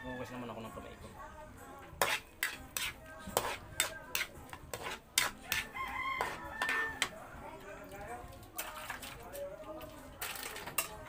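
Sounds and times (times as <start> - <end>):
metal spatula scraping a wok: 1.9 - 7.1.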